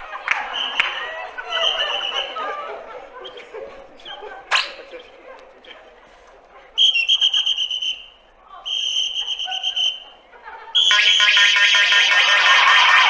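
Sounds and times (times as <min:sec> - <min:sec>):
shrill trilling whistle: 0:06.8 - 0:10.1, 0:10.8 - 0:13.0.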